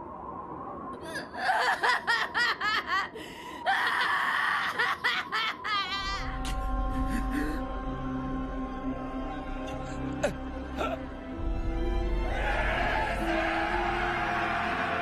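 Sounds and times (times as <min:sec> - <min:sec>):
man crying and screaming: 0:01.1 - 0:07.7
low sustained music: 0:05.8 - 0:15.0.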